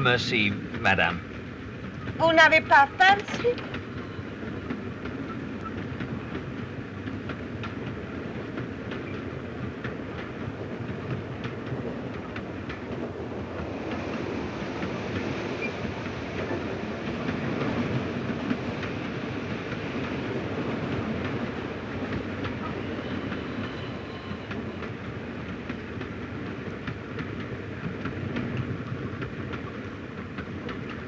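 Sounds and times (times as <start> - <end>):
train running rumble: 0.0 - 31.0
wheels clicking over rail joints: 22.0 - 31.0.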